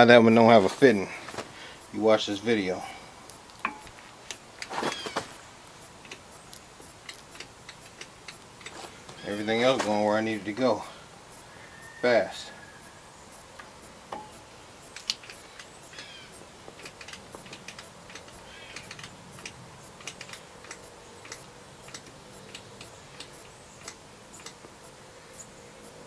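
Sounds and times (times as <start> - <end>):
grease gun lever clicking: 16.7 - 24.6.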